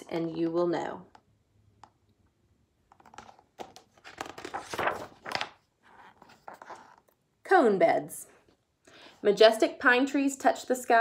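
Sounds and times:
book page turning: 2.9 - 7.2.

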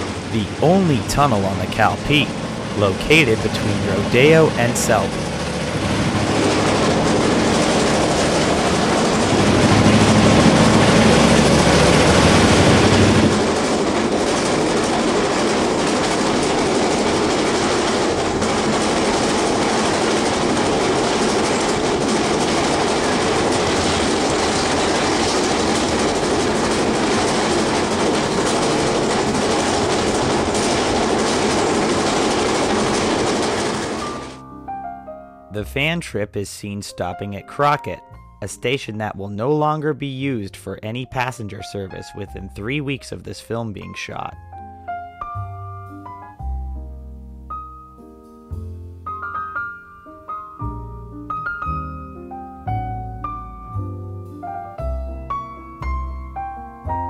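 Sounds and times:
train wheels rumbling on rails: 0.0 - 34.4.

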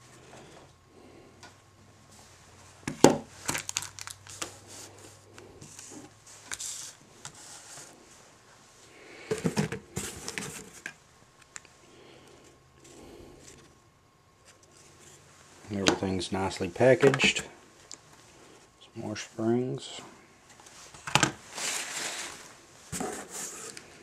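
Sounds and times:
packaging crinkling and rustling: 3.3 - 7.4.

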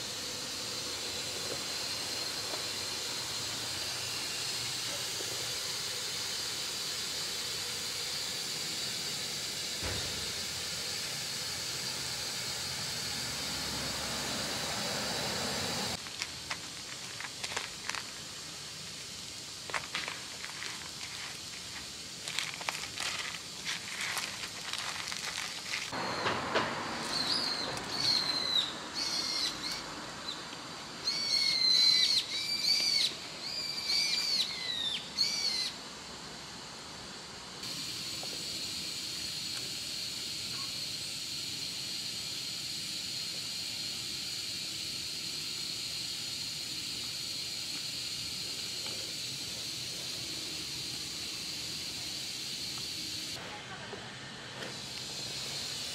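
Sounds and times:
steady hiss: 0.0 - 55.9
high bird chirps: 27.1 - 29.8, 31.1 - 35.7.

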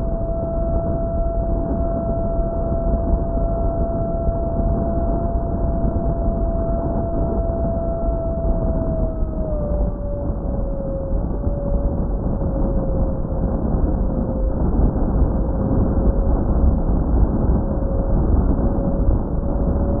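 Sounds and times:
electric motor and propeller whine: 0.0 - 20.0
wind rushing over airframe: 0.0 - 20.0.

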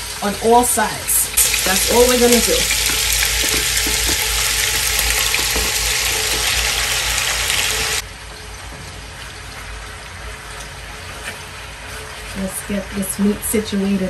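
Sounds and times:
meat sizzling in hot oil: 0.0 - 8.0.

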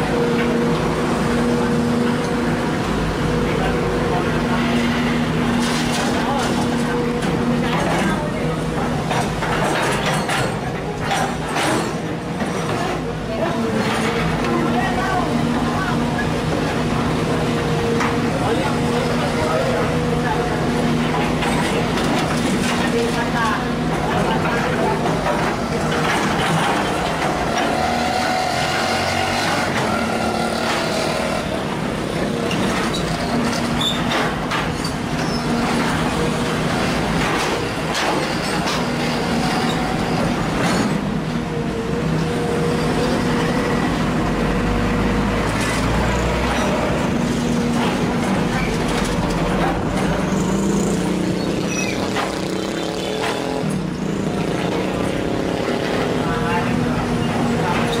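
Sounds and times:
excavator diesel engine: 0.0 - 58.0.

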